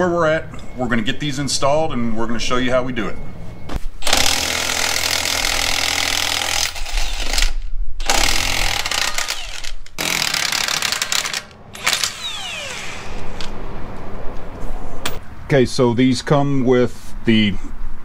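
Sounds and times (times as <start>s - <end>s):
impact wrench hammering: 8.0s - 13.2s.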